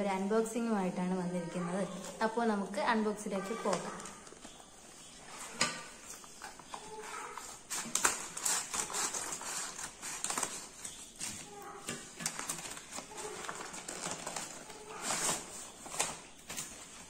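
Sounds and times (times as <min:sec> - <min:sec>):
paper crinkling and rustling: 0:03.4 - 0:17.0
scissors snipping paper: 0:06.1 - 0:17.0.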